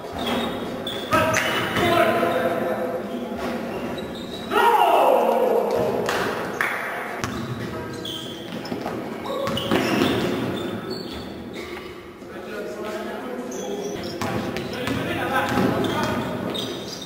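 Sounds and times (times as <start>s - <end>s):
players' voices: 0.0s - 11.0s, 11.6s - 17.0s
loud shout: 4.5s - 6.2s
basketball bouncing on gym floor: 8.5s - 11.3s, 14.2s - 16.3s.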